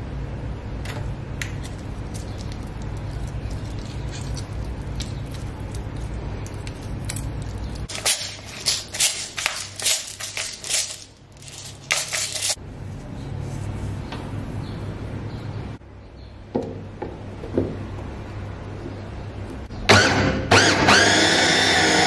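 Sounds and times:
pepper mill grinding: 1.6 - 12.6.

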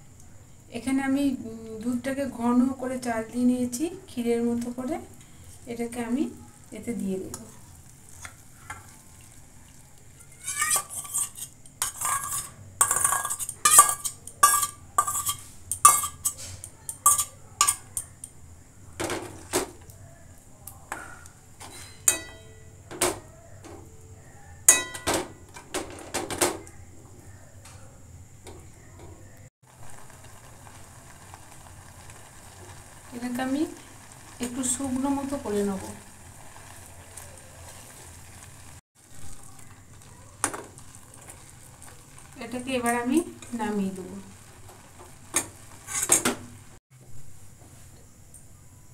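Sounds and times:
metal spoon scraping cookware: 10.4 - 18.2, 21.6 - 22.6, 45.4 - 46.4.

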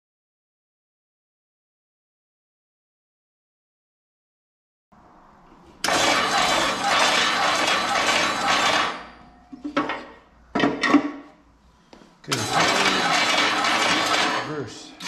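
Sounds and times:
concrete mixer motor running: 5.8 - 9.3, 12.3 - 14.7.

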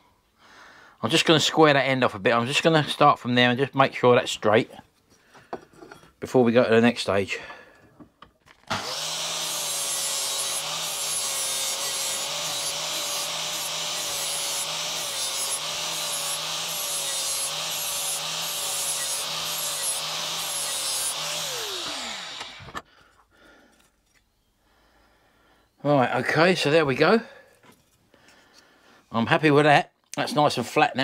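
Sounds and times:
angle grinder grinding metal: 8.7 - 22.8.

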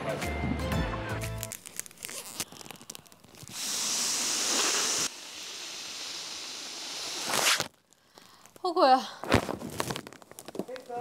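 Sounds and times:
foil balloon crinkling: 1.3 - 11.0
breath blown through a straw: 3.5 - 7.6.

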